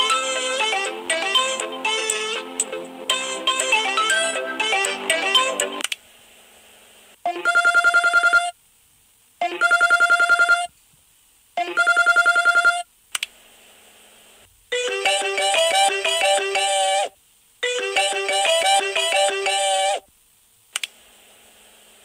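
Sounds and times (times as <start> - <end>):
trilling phone ringtone: 3.1 - 5.8, 7.3 - 8.6, 9.5 - 10.7, 11.6 - 12.8, 14.7 - 20.0.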